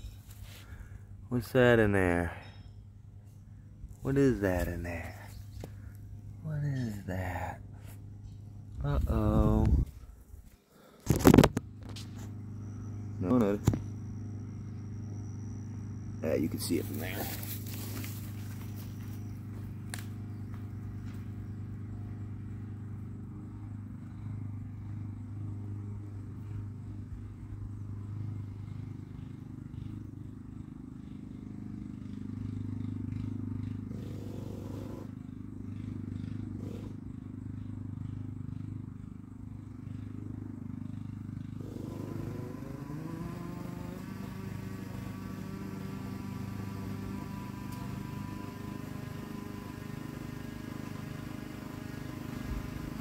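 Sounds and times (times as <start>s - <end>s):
small nitro engine buzzing: 11.0s - 38.2s, 39.8s - 53.0s.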